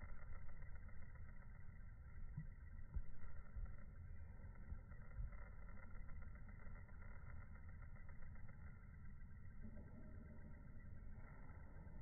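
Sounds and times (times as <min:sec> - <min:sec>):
faint low outdoor rumble: 0:00.0 - 0:12.0.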